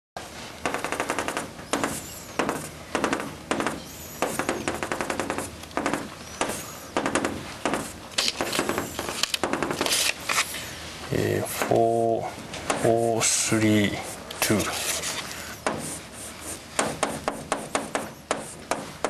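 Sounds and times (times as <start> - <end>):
chalk tapping on a blackboard: 1.7 - 2.7, 3.5 - 8.9, 15.6 - 19.0.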